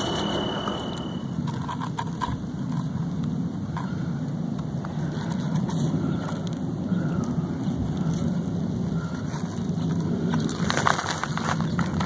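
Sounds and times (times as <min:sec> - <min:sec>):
low rumbling noise: 0:00.0 - 0:01.9.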